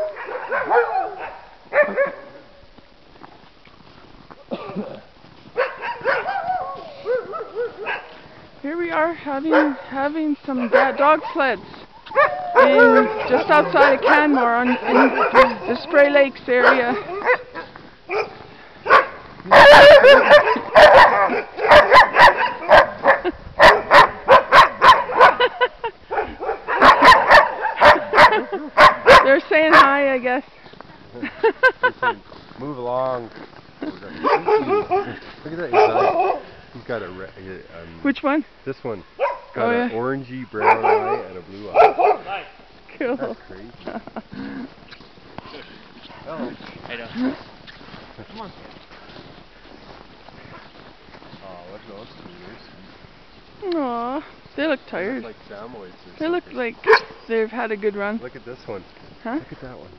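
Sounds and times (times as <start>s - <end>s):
dogs yelping and barking: 0.0s - 2.4s, 5.6s - 8.2s, 9.5s - 9.9s, 10.5s - 30.0s, 34.1s - 36.5s, 39.1s - 40.0s, 40.6s - 42.6s, 56.8s - 57.2s.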